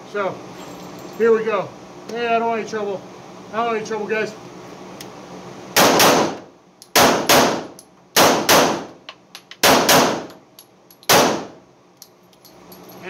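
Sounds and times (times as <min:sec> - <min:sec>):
pistol shots indoors: 0:05.8 - 0:09.0, 0:09.6 - 0:10.4, 0:11.1 - 0:11.6.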